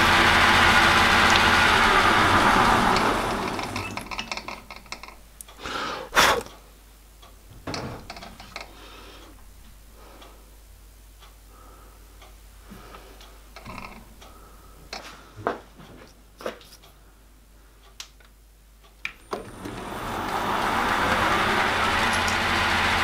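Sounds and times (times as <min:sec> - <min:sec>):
metallic clicks and knocks: 0:03.8 - 0:05.6, 0:07.2 - 0:08.8.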